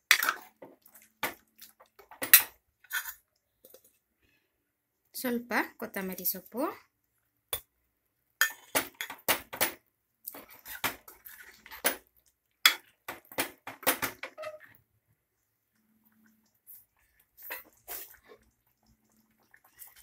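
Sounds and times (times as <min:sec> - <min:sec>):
ladle clinking and scraping pot: 0:08.4 - 0:09.2.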